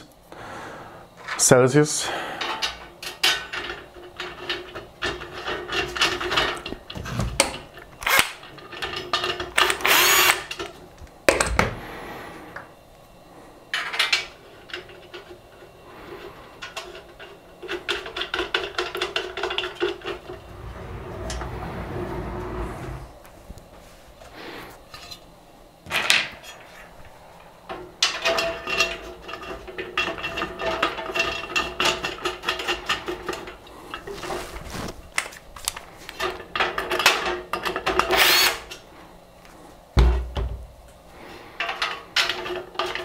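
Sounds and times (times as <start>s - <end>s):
steady whir: 19.9s - 23.8s
metal scrape: 19.9s - 24.0s.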